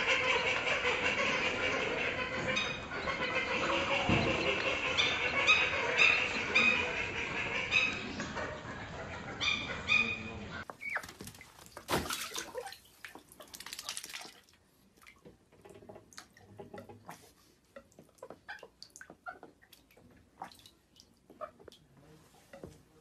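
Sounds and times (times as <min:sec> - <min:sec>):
duck splashing in water: 0:10.8 - 0:15.2
water dripping: 0:10.8 - 0:21.9.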